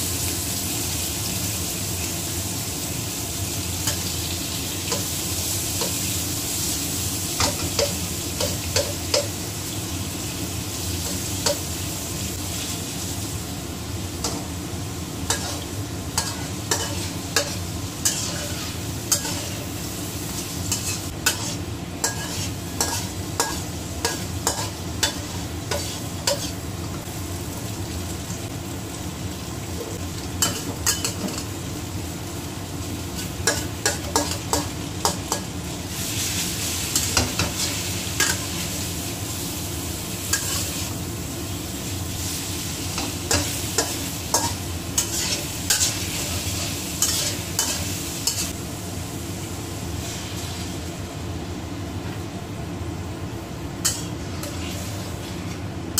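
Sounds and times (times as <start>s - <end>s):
food sizzling in hot oil: 0.0s - 51.8s, 53.0s - 55.9s
metal spatula scraping a wok: 16.2s - 19.7s, 20.7s - 26.6s, 40.3s - 40.9s, 43.0s - 48.6s, 53.8s - 55.5s.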